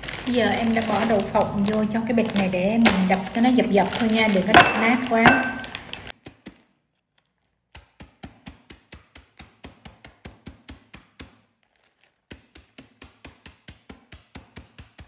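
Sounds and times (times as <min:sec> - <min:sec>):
pestle pounding on a board: 0:04.5 - 0:05.8.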